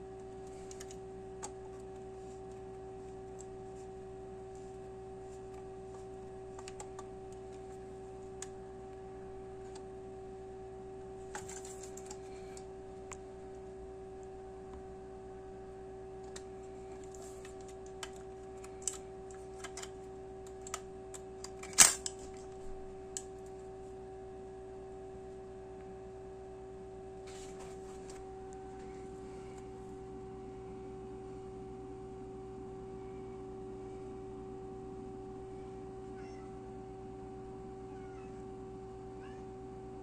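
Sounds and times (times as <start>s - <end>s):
steady hum: 0.0s - 40.0s.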